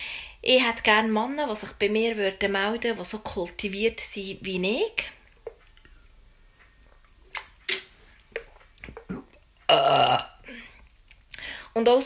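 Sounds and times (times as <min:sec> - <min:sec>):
swallowing and mouth sounds: 0:07.0 - 0:10.2.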